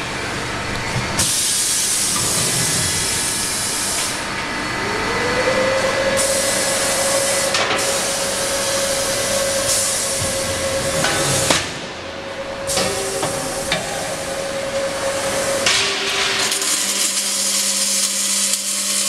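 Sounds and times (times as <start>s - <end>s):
welding machine hiss: 1.2s - 4.2s, 6.2s - 11.7s, 12.7s - 19.0s.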